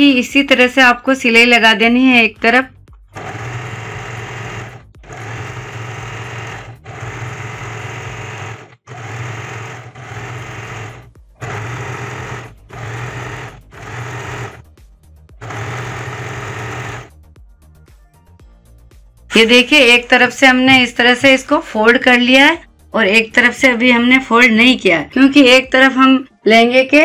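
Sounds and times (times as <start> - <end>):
electric sewing machine stitching: 3.2 - 14.6, 15.4 - 17.1.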